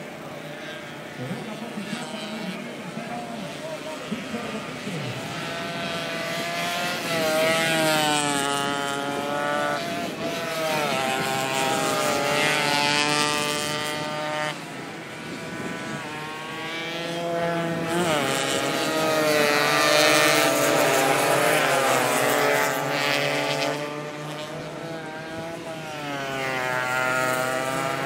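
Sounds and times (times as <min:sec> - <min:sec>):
race motorcycles revving past: 0:00.0 - 0:28.0.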